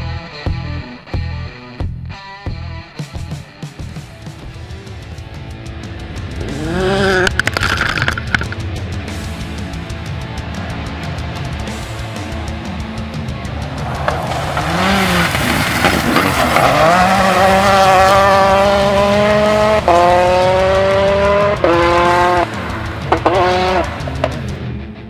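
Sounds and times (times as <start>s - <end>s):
background music: 0.0s - 25.0s
rally car engine at full throttle: 3.2s - 25.0s
gear upshifts: 12.0s - 24.5s.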